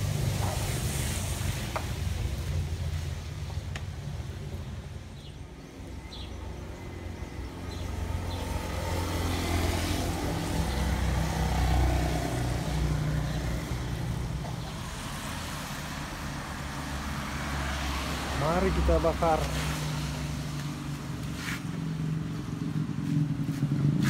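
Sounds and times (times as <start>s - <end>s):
tyres hissing on wet road: 0.0s - 4.9s, 8.5s - 22.2s
motor scooter engine passing: 5.7s - 24.0s.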